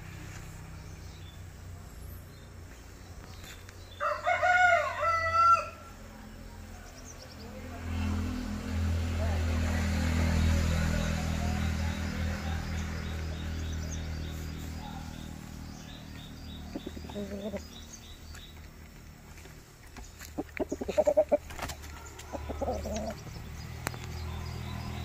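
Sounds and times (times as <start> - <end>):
rooster clucking: 16.7 - 17.8, 20.3 - 23.3.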